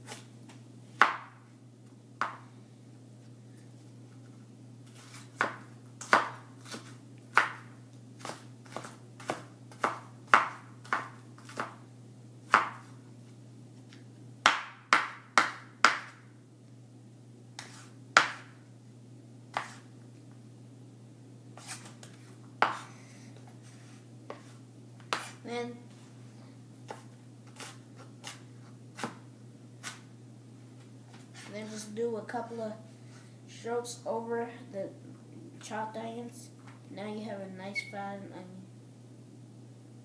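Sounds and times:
knife chopping on wooden board: 0:02.2 - 0:02.4, 0:05.4 - 0:11.8, 0:12.5 - 0:12.9, 0:14.4 - 0:16.2, 0:17.6 - 0:18.5, 0:19.5 - 0:19.8, 0:22.6 - 0:22.9, 0:25.1 - 0:25.4.

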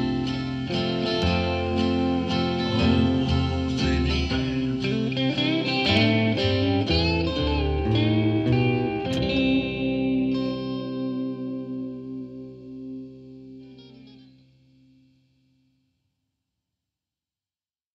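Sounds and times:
acoustic guitar picking: 0:00.0 - 0:15.0
electric guitar and bass backing: 0:00.0 - 0:15.2.

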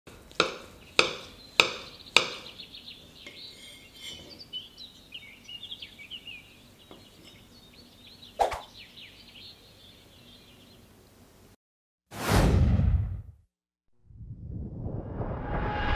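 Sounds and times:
faint high chirping: 0:01.2 - 0:10.9.

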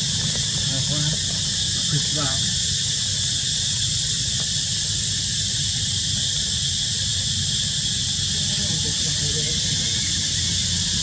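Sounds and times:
high-pitched insect chorus: 0:00.0 - 0:11.0
low continuous rumble: 0:00.0 - 0:11.0.

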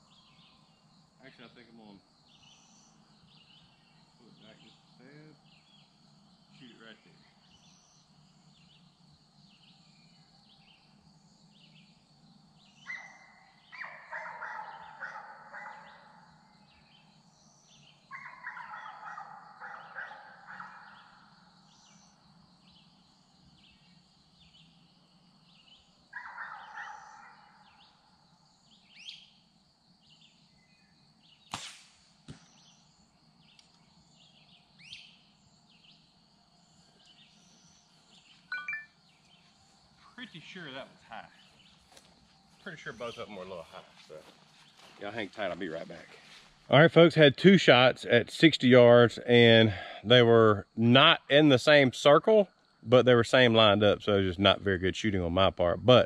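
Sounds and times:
birds calling: 0:00.0 - 0:56.0
insects buzzing: 0:00.0 - 0:56.0
arrow striking target: 0:31.4 - 0:32.7.

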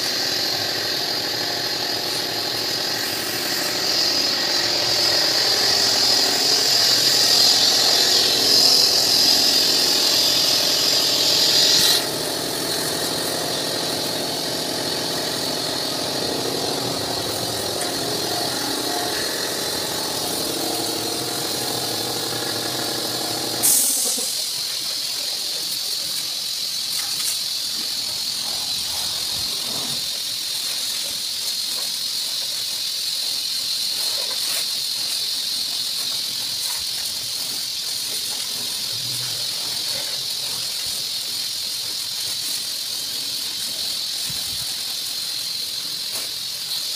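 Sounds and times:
motor running: 0:00.0 - 0:24.4
pressure washer jet hissing: 0:00.0 - 0:25.0.

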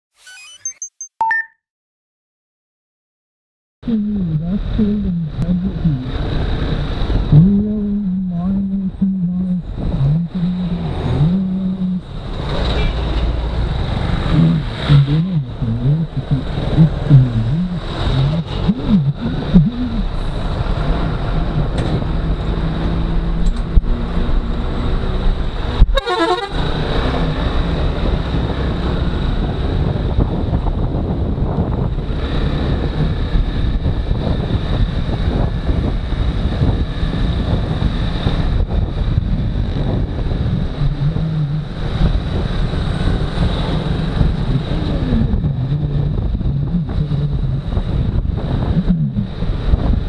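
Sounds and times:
road noise: 0:03.8 - 0:50.0
motorcycle engine revving: 0:04.0 - 0:30.3
vehicle horns honking: 0:25.8 - 0:26.7.

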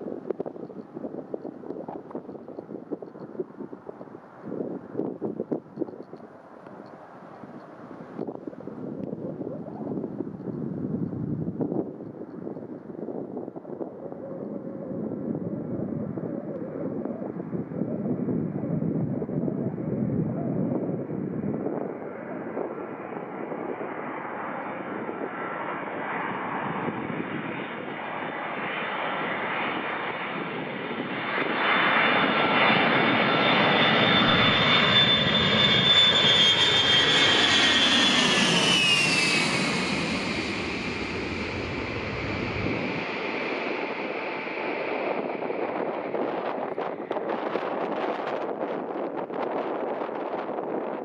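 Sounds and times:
jet engines whining: 0:25.2 - 0:48.1.

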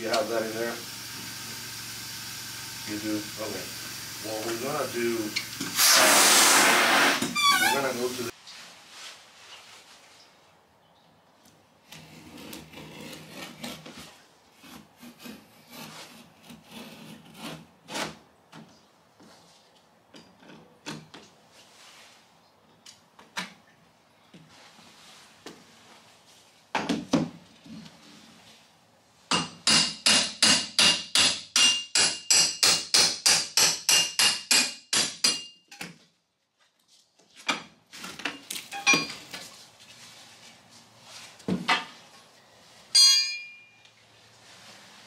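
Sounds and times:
hammer striking metal pry bar: 0:29.3 - 0:35.9.

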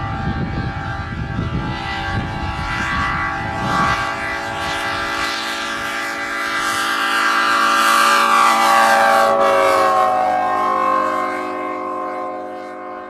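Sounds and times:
air horn chord: 0:00.0 - 0:13.0.

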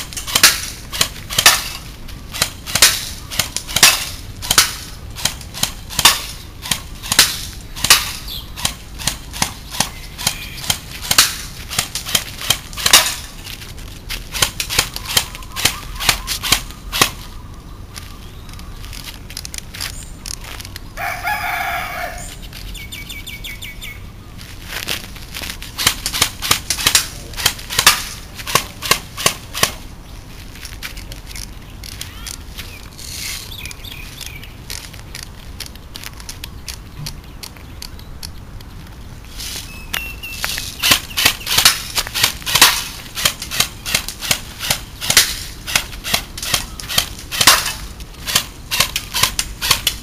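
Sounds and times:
airsoft gun firing shots: 0:00.2 - 0:13.3, 0:25.8 - 0:29.8, 0:40.8 - 0:50.0
rooster crowing: 0:21.0 - 0:22.3.

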